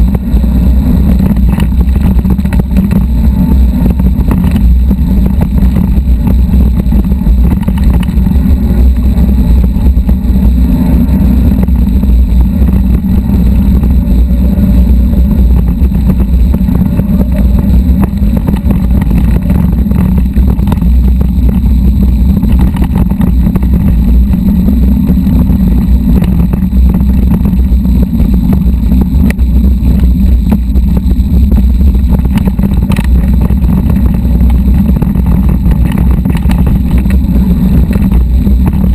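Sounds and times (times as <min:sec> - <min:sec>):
bike rolling over rocky trail: 0:12.4 - 0:27.8, 0:32.0 - 0:38.9.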